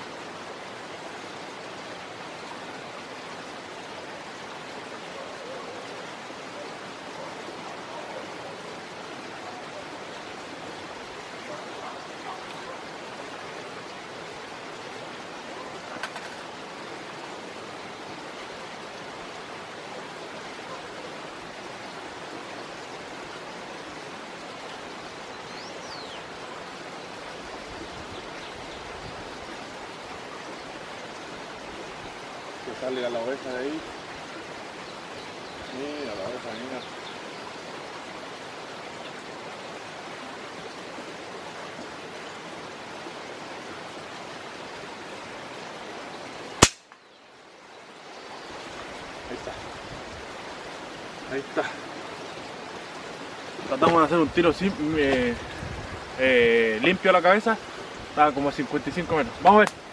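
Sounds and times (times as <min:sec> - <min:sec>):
rainwater rushing in ditch: 0:00.0 - 0:47.0, 0:47.9 - 0:59.9
sharp click: 0:46.6 - 0:47.0.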